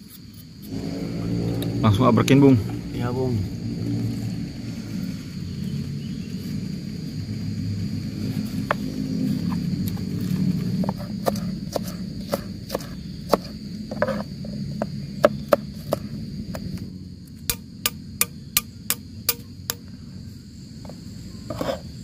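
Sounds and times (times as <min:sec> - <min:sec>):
insects droning: 0:00.0 - 0:22.0
knife chopping on plastic board: 0:11.2 - 0:13.5.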